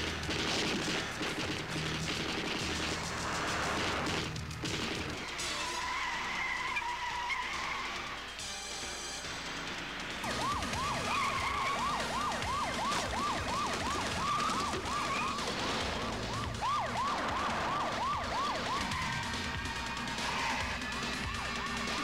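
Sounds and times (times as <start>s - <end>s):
police siren yelping: 10.2s - 22.0s.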